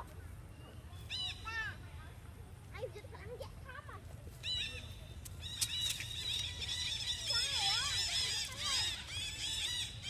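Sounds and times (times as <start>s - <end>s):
monkeys squealing and screaming: 6.1s - 10.0s.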